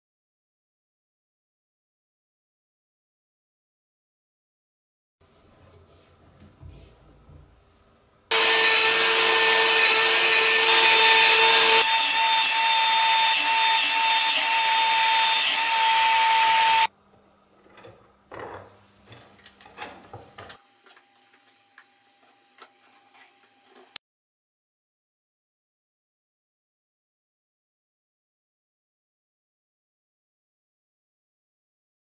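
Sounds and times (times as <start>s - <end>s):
power tool milling steel whine: 8.3s - 16.9s.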